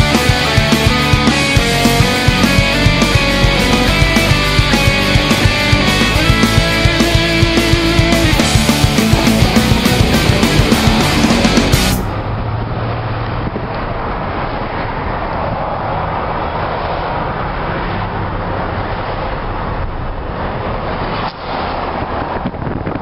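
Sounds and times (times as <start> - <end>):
rock music with electric guitar: 0.0 - 12.2
low hum: 0.0 - 21.1
road and engine noise in car: 0.1 - 23.0.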